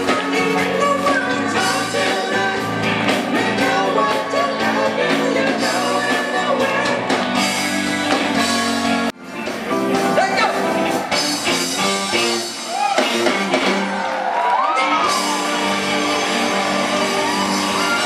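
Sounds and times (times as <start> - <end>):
men singing lead: 0.0 - 7.6
live rock band playing: 0.0 - 18.0.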